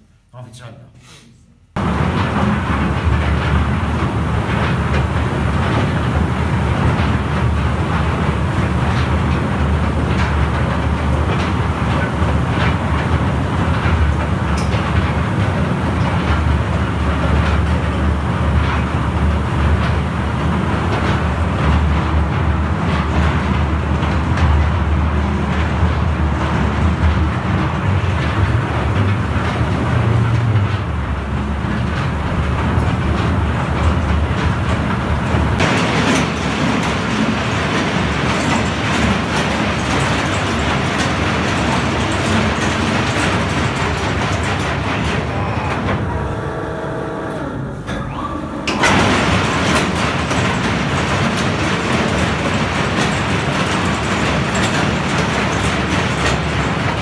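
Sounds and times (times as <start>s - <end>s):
heavy mining machinery clatter: 1.8s - 57.0s.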